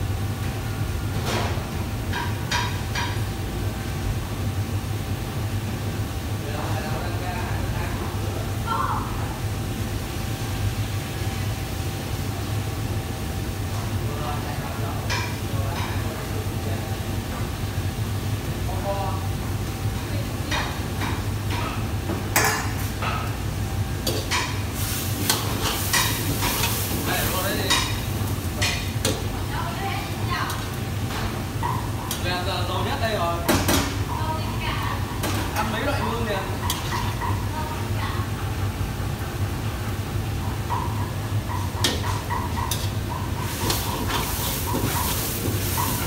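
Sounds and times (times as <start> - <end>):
gas burner roar: 0.0 - 46.0
food sizzling in oil: 15.0 - 46.0
ladle scraping a wok: 41.6 - 46.0.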